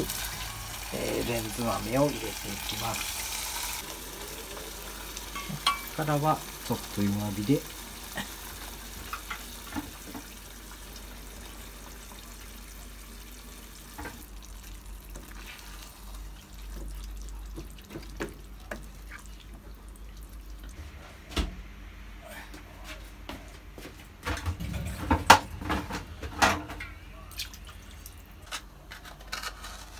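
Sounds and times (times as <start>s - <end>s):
stew sizzling in saucepan: 0.0s - 20.7s.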